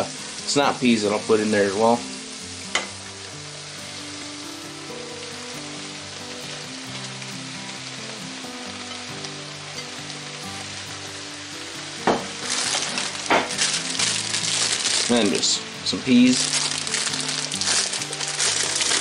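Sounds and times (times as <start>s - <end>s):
soft background music: 0.0s - 19.0s
stir-fry sizzling in oil: 0.0s - 19.0s
vegetables tossed into pan: 12.1s - 15.6s, 16.3s - 19.0s.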